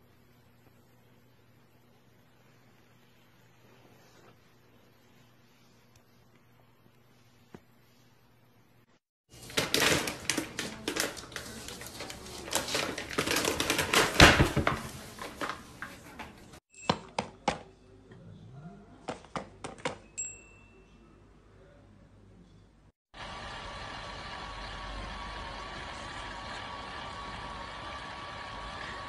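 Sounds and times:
paper bag crinkling: 0:09.3 - 0:16.1.

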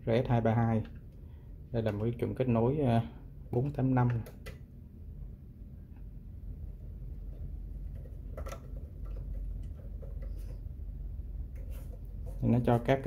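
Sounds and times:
faint clicks and taps: 0:07.2 - 0:10.8.

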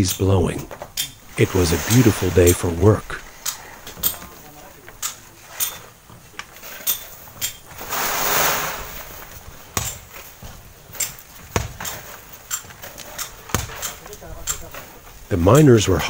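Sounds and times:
poles scraping sand: 0:00.0 - 0:16.0
sand sliding down a cliff: 0:01.3 - 0:05.6, 0:07.7 - 0:09.6.

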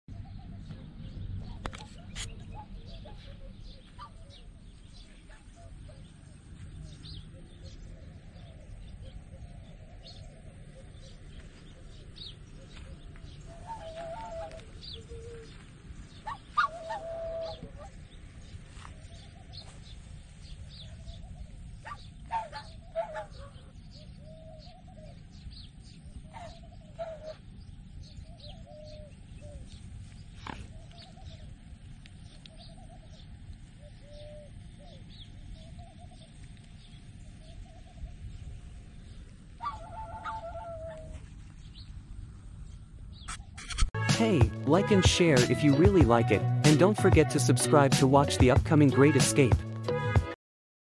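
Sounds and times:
steady low rumble: 0:00.1 - 0:47.8
swans calling: 0:13.3 - 0:20.2, 0:20.8 - 0:23.8, 0:39.4 - 0:41.5.

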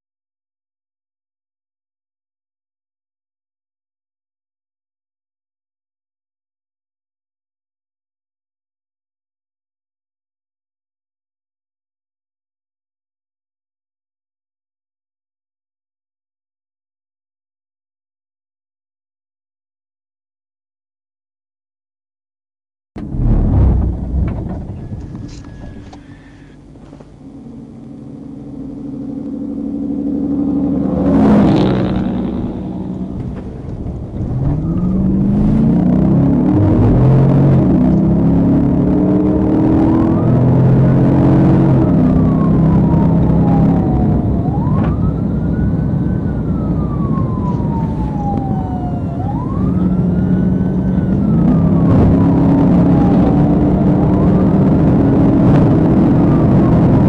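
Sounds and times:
low road rumble: 0:23.0 - 0:57.0
truck engine and tyre noise passing: 0:23.0 - 0:57.0
police siren wailing: 0:27.3 - 0:57.0.

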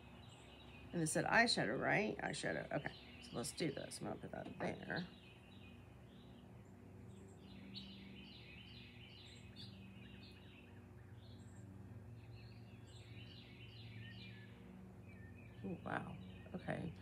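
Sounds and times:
songbird chirping: 0:00.0 - 0:17.0
steady low hum: 0:00.0 - 0:17.0.

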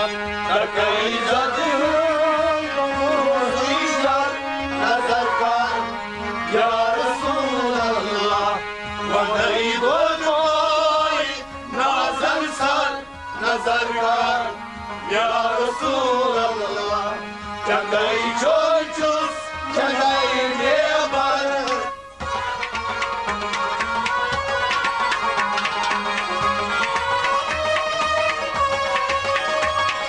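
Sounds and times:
man singing: 0:00.0 - 0:22.0
harmonium: 0:00.0 - 0:30.0
percussion strokes: 0:21.6 - 0:30.0.

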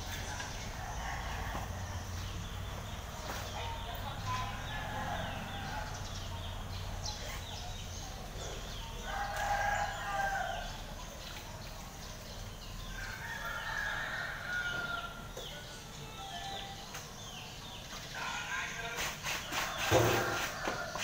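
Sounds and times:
rooster crowing: 0:09.0 - 0:10.8.

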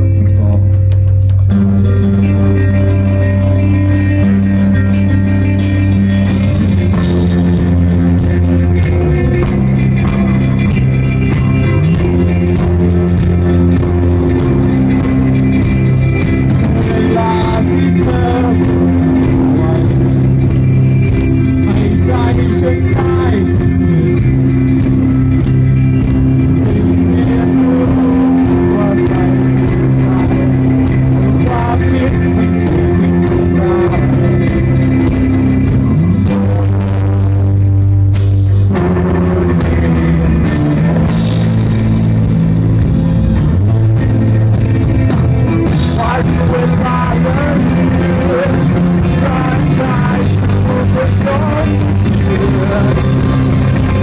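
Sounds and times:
live rock band: 0:00.0 - 0:54.0
person singing: 0:06.9 - 0:37.6, 0:45.2 - 0:54.0.

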